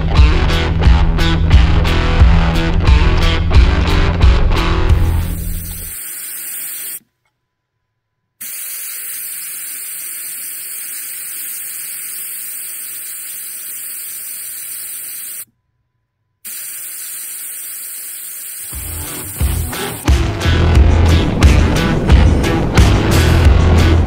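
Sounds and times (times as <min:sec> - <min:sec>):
air hissing out of tire: 0:05.0 - 0:07.0, 0:08.4 - 0:15.5, 0:16.4 - 0:20.1.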